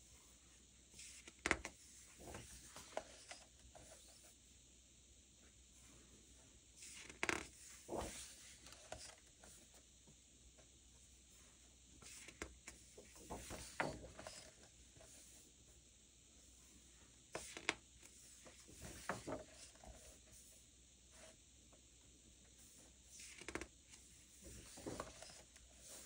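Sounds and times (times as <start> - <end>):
book pages turning: 1.0 - 4.2, 6.8 - 9.3, 12.0 - 14.6, 18.4 - 20.1, 24.4 - 26.0.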